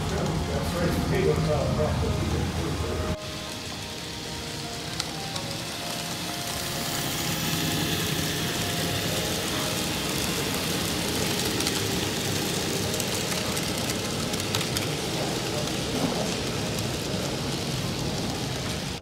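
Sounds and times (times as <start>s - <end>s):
model train rattling on track: 0.0s - 19.0s.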